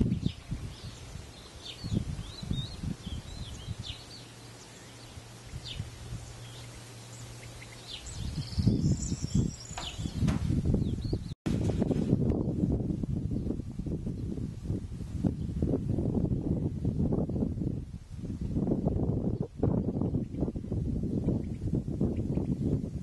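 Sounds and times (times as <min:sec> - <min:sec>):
small birds chirping: 0:00.0 - 0:12.6, 0:19.3 - 0:22.9
wind buffeting microphone: 0:00.0 - 0:23.0.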